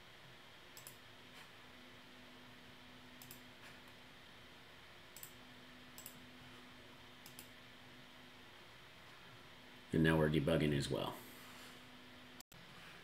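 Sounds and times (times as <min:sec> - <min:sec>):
faint steady hum: 0:00.0 - 0:13.0
computer mouse clicks: 0:00.8 - 0:01.0, 0:03.2 - 0:03.4, 0:05.1 - 0:05.4, 0:06.0 - 0:06.2, 0:07.2 - 0:07.6.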